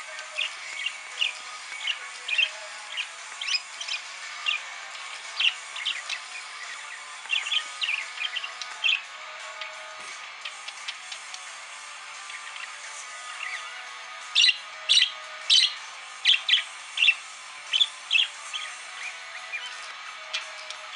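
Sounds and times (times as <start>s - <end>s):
budgerigar chirping: 0.3s - 9.1s, 14.3s - 20.9s.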